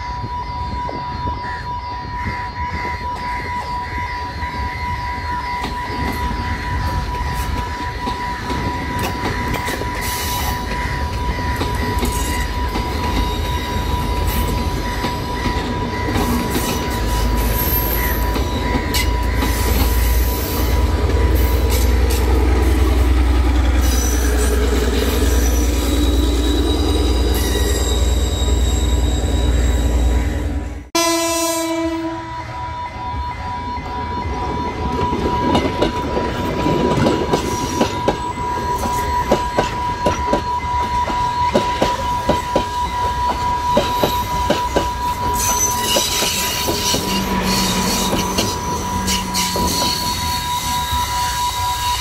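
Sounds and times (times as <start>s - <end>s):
wheels clattering and squealing on rails: 0.0s - 30.9s, 31.8s - 52.0s.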